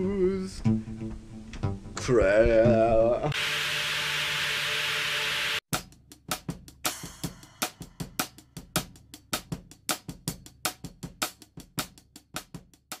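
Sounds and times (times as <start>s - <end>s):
drum kit fast beat: 5.6s - 13.0s.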